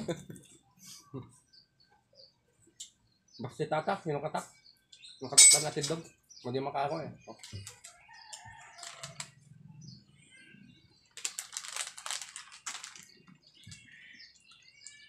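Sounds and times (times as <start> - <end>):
rooster crowing: 8.0 - 9.2
small bird chirps: 13.1 - 15.0.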